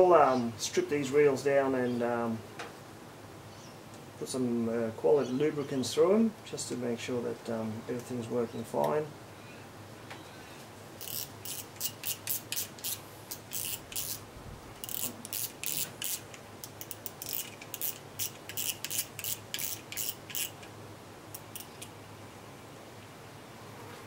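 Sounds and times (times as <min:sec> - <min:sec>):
fishing reel rasping rubs: 0:11.0 - 0:14.2, 0:14.8 - 0:20.7, 0:21.3 - 0:21.9.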